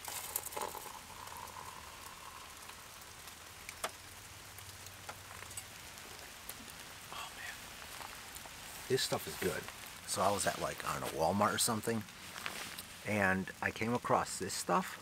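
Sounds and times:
water pouring into mug: 0.0 - 3.8
sharp water drips: 0.0 - 14.1
rain patter: 0.0 - 15.0.

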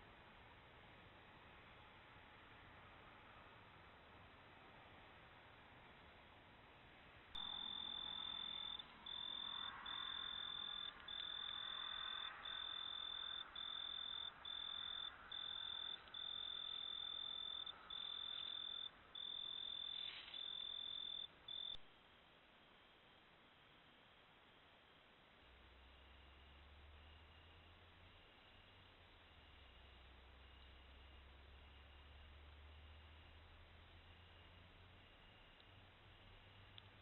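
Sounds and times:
cricket trilling: 7.4 - 21.8.

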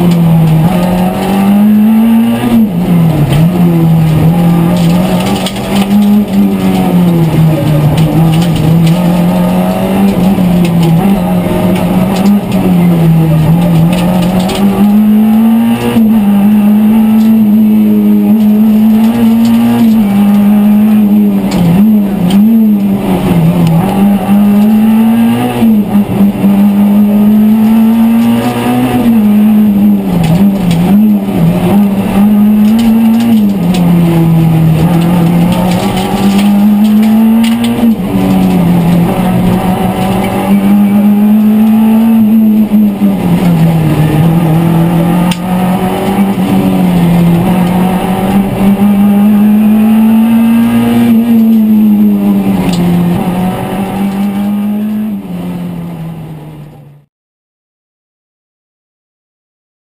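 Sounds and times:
rally car engine revving: 0.0 - 57.1.

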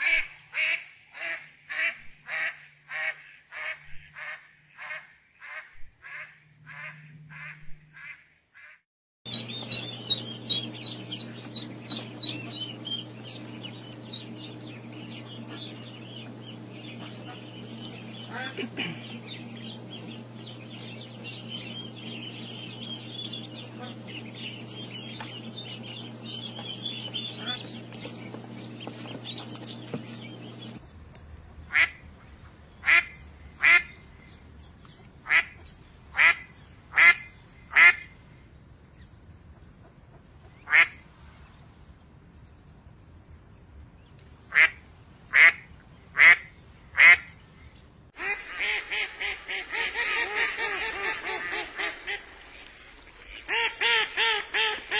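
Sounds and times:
ducks calling: 0.0 - 30.8, 31.6 - 34.3, 35.2 - 38.2, 40.2 - 41.1, 44.5 - 47.4, 48.2 - 54.9
steady hum: 9.3 - 38.6.

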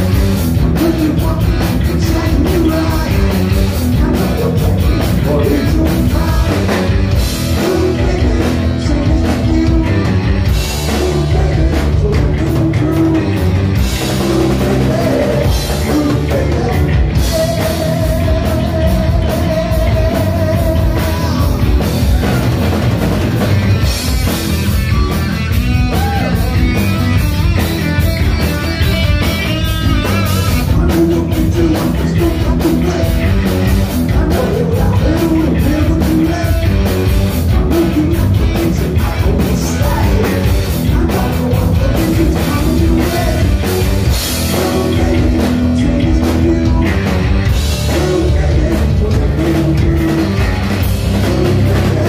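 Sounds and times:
bass guitar: 0.0 - 52.0
distorted electric guitars: 0.0 - 52.0
fast drumming: 0.0 - 52.0.

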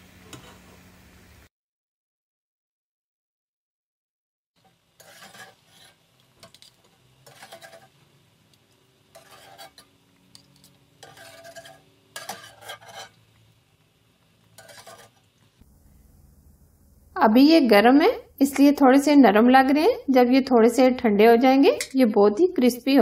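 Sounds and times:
metal spatula scraping wire skimmer: 4.6 - 8.1, 9.1 - 13.3, 14.5 - 15.3.

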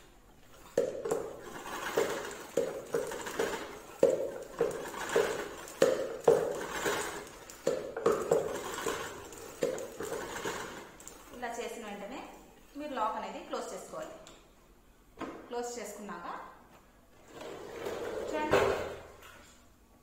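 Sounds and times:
spin mop clicking rattling whir: 0.5 - 11.5.

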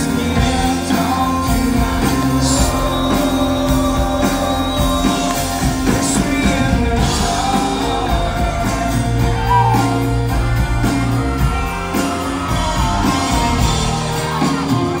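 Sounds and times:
acoustic guitars: 0.0 - 15.0
electric bass: 0.0 - 15.0
steady beat: 9.3 - 10.3.

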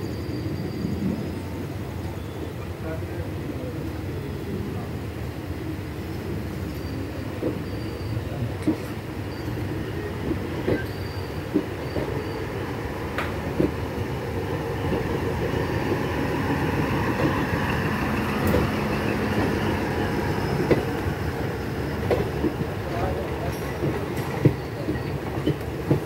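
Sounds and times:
train wheels rumbling: 5.8 - 26.0
wheels clacking over rail joints: 10.1 - 26.0.

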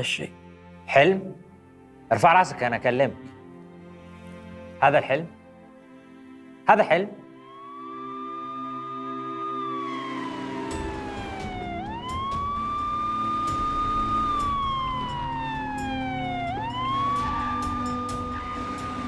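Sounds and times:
police siren wailing: 7.2 - 19.0
low rumble: 10.8 - 17.7.

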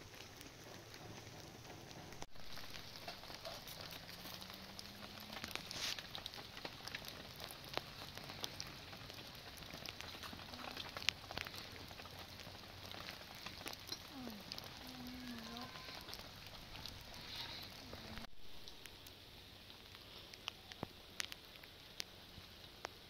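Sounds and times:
rain pattering: 0.0 - 23.0
sharp ticks and crackles: 0.0 - 23.0.

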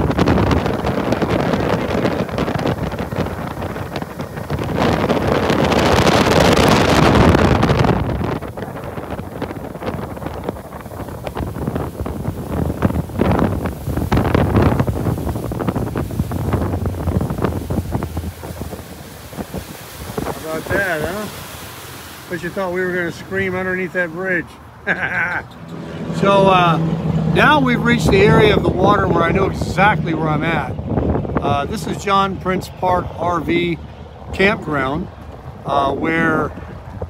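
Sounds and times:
boat rushing through water: 0.0 - 37.0
wind buffeting microphone: 0.0 - 37.0.

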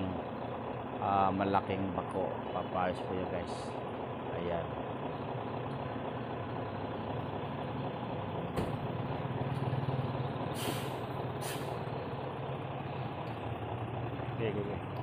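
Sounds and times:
diesel truck engine running: 0.0 - 15.0
air brake hisses: 10.5 - 11.8.

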